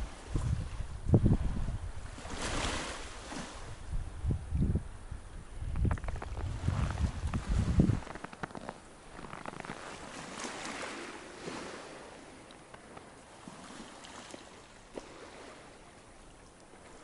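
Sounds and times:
slush ice rustling in waves: 5.9s - 12.4s.

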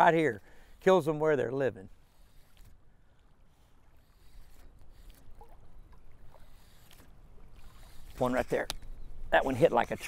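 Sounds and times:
water lapping around legs: 0.0s - 10.0s
soft ticks: 8.6s - 8.9s.

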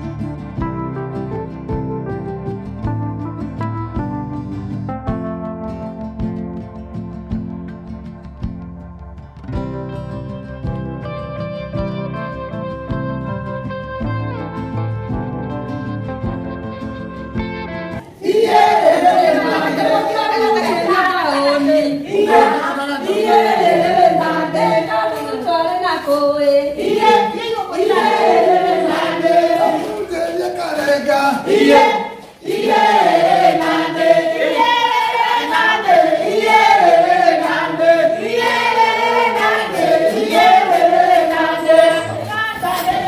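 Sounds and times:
group of people singing: 18.0s - 43.0s.

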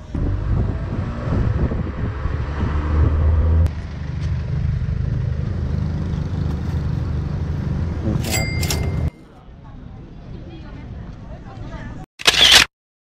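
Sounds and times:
truck engine rumbling: 0.0s - 9.4s.

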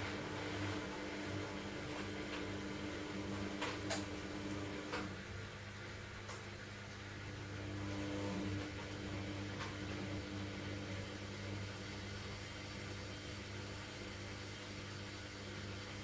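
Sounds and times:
washing machine drum motor humming: 0.0s - 16.0s.

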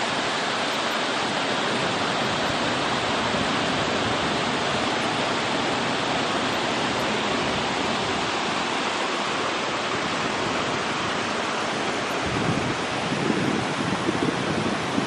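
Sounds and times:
river water rushing over rocks: 0.0s - 15.0s.

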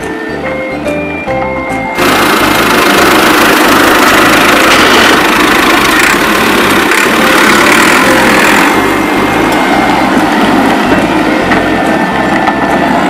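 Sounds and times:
bass of background music: 0.0s - 2.0s
tractor engine running: 0.8s - 13.0s.

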